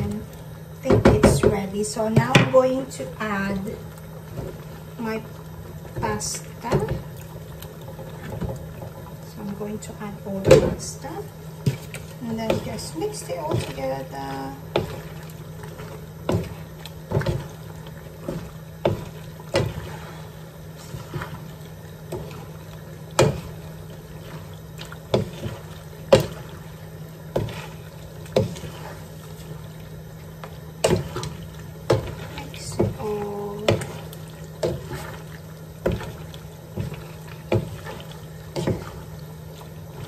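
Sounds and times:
wet squelching of pasta: 10.9 - 40.0.

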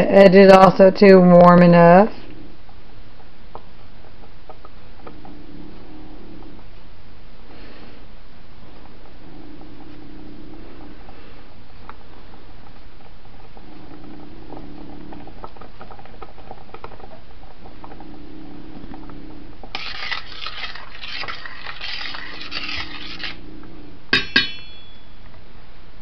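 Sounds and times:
spoon stirring thick sauce: 19.8 - 23.4
spoon clinking on pan: 24.2 - 25.0.

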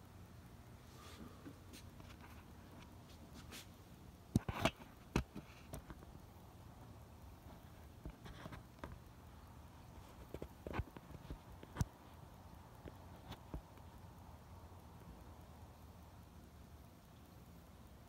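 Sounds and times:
background hiss: 0.0 - 18.0
clicks and rustles near microphone: 1.1 - 6.2, 7.4 - 9.2, 9.8 - 12.1, 12.7 - 14.0.

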